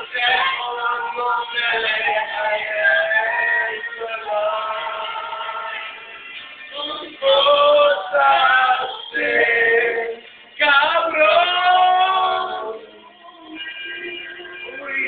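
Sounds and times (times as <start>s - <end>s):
men singing loudly: 0.0s - 6.0s, 6.8s - 15.0s.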